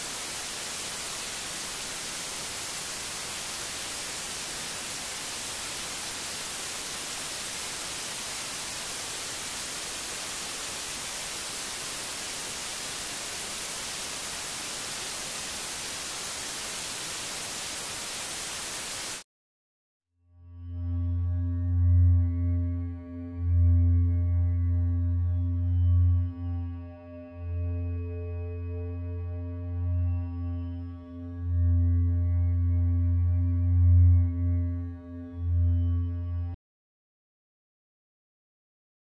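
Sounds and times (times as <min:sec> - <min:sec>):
static hiss: 0:00.0 - 0:19.2.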